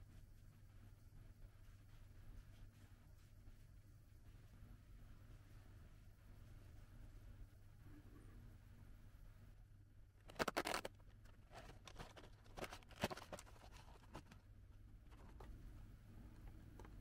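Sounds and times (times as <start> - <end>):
cardboard box clicks and crackles: 10.3 - 14.4.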